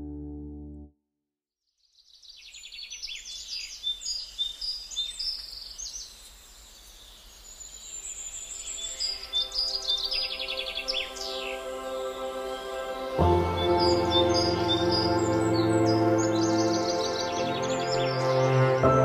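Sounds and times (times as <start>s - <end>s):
songbirds chirping: 1.8s - 19.0s
soft piano music: 9.6s - 19.0s
sustained piano chord: 11.1s - 19.0s.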